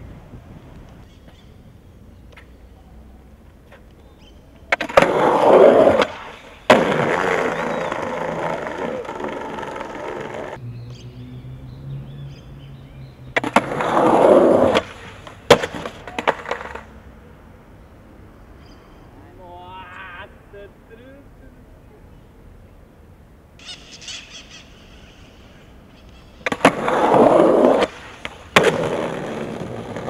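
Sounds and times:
skateboard wheels rolling on bricks: 0:03.5 - 0:10.6, 0:13.4 - 0:17.0, 0:26.3 - 0:30.0
skateboard clattering on paving: 0:04.7 - 0:10.6, 0:13.4 - 0:16.9, 0:26.4 - 0:30.0
skateboard smacking ground: 0:04.7 - 0:10.6, 0:13.4 - 0:16.9, 0:26.4 - 0:30.0.

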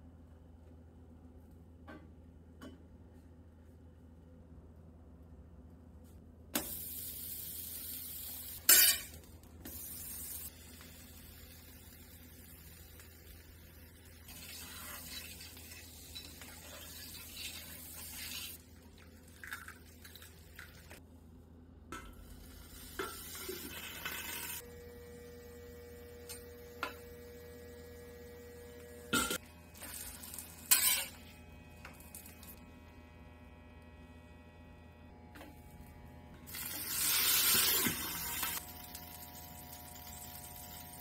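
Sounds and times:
electrical hum: 0:00.0 - 0:41.0
egg sizzling: 0:06.6 - 0:21.0, 0:36.5 - 0:41.0
metal lid and spatula clinking: 0:08.6 - 0:09.2.

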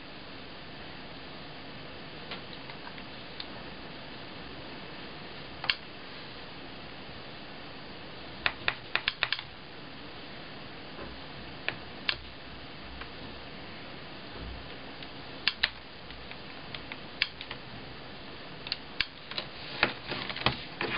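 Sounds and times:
faint steady hiss: 0:00.0 - 0:20.9.

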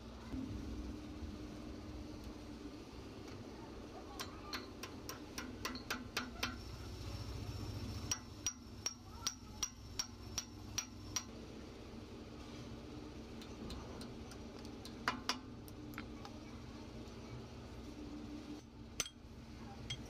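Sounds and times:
hammer tapping steel punch: 0:04.2 - 0:06.6, 0:08.1 - 0:11.3.

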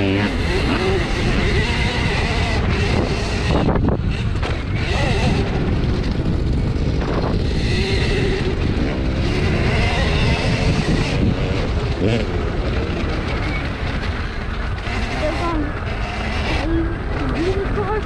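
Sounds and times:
electric motor whine: 0:00.0 - 0:13.8
wind buffeting microphone: 0:00.0 - 0:18.0.

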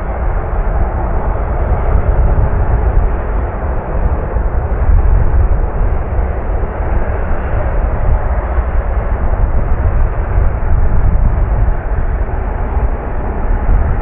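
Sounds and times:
jet engines rumbling: 0:00.0 - 0:14.0.

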